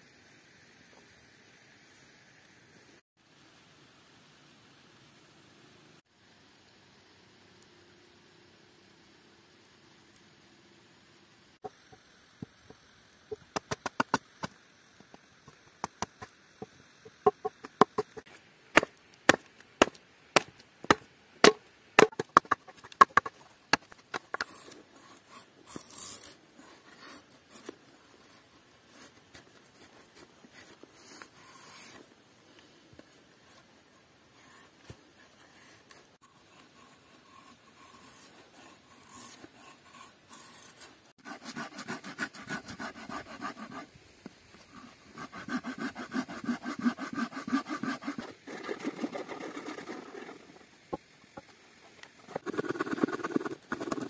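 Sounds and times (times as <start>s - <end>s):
knife scraping wood: 17.3s - 32.0s, 33.0s - 43.9s, 44.7s - 50.6s, 52.3s - 54.0s.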